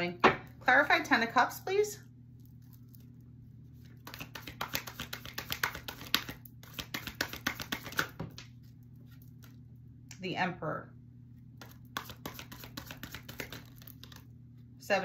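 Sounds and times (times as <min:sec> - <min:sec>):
cards being shuffled: 0:03.9 - 0:09.6, 0:11.6 - 0:14.3.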